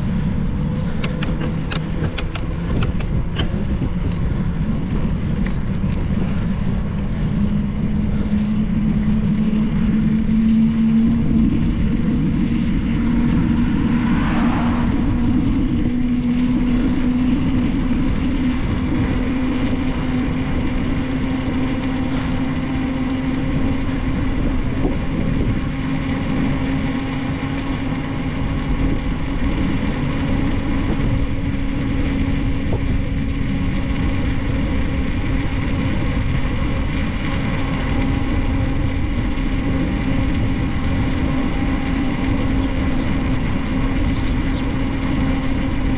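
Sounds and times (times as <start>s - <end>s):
bicycle rolling road noise: 0.0s - 45.9s
steady rising hum: 0.0s - 45.9s
wind rushing over microphone: 0.0s - 45.9s.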